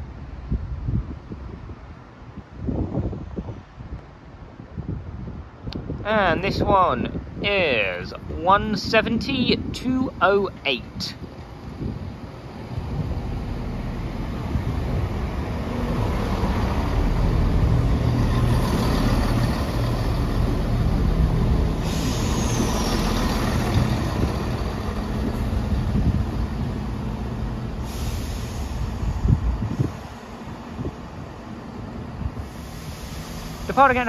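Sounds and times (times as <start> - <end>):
diesel train engine hum: 8.0 - 34.0.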